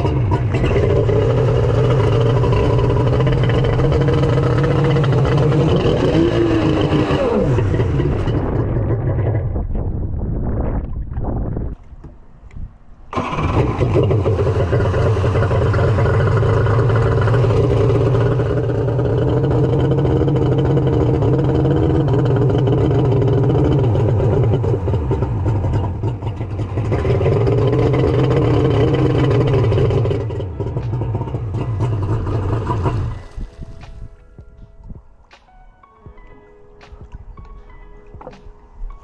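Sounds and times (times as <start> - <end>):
jet ski engine revving: 0.0 - 9.4, 13.1 - 33.3.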